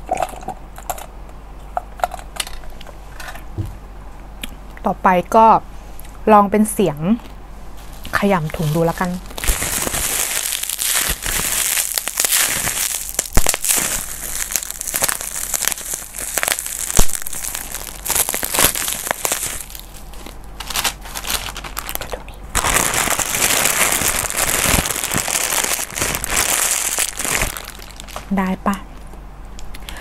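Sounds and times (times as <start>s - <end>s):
bag crumpling: 8.4s - 28.4s.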